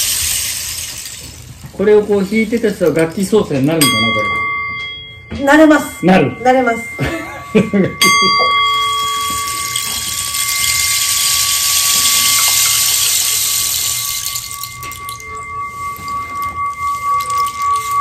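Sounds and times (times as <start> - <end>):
rain stick rushing hiss: 0.0 - 3.4, 9.0 - 18.0
singing bowl ringing: 0.0 - 18.0.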